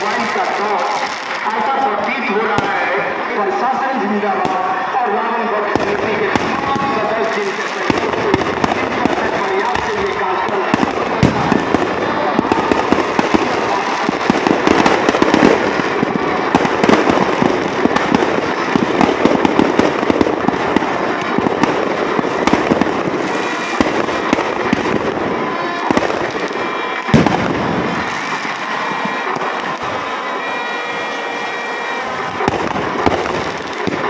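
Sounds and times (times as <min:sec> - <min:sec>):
firecrackers crackling: 0:00.0 - 0:34.0
loud firework bangs: 0:00.0 - 0:34.0.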